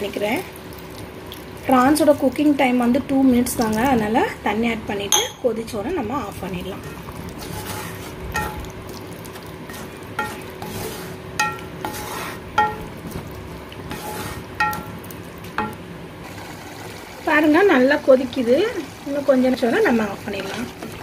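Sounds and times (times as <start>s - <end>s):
steady sizzle: 0.0s - 21.0s
spatula knocking against pan: 11.4s - 11.7s, 12.5s - 13.2s, 14.6s - 15.0s, 15.6s - 15.8s.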